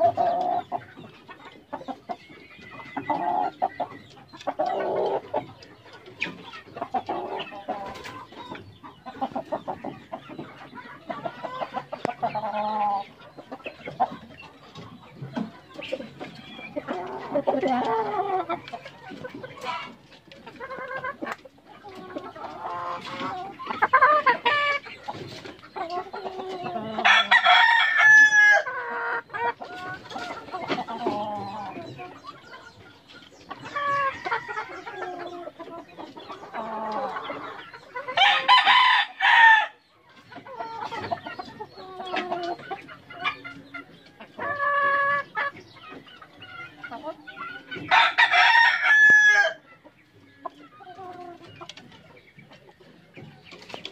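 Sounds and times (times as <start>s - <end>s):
chickens clucking: 0.0s - 53.9s
roosters crowing: 26.6s - 29.0s, 38.2s - 39.8s, 47.8s - 49.7s.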